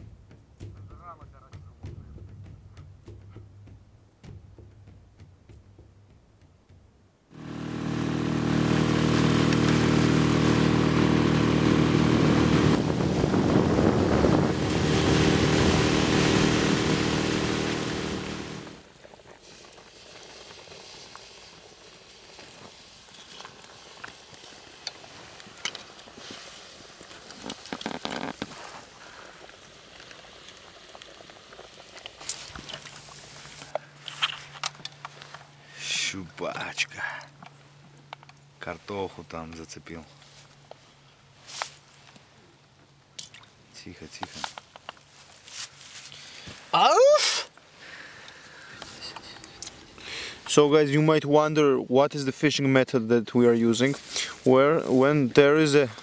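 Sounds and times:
open fire crackling: 0:06.0 - 0:51.6, 0:53.3 - 0:56.0
engine running loudly: 0:07.4 - 0:18.8.

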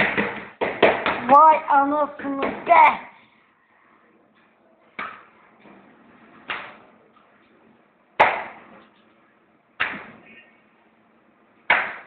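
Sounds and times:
dough slapped onto table: 0:11.7 - 0:12.0.

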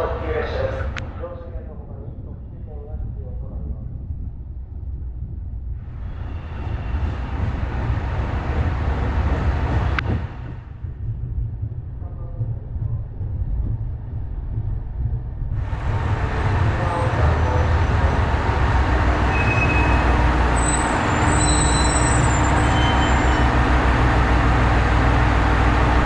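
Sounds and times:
diesel train rumble: 0:00.0 - 0:26.0
train wheel noise: 0:03.0 - 0:26.0
short high squeals: 0:19.3 - 0:23.6.

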